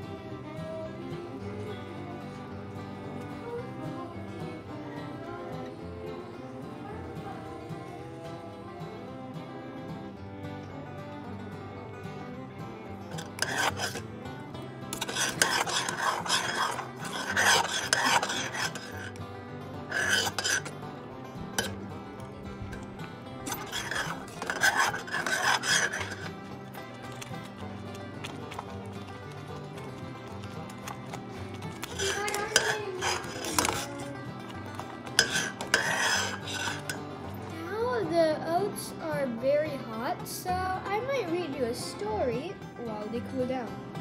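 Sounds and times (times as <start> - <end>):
soft background music: 0.0 - 44.0
metal spoon scraping saucepan: 12.9 - 37.6
stirring wet oatmeal: 13.1 - 37.6.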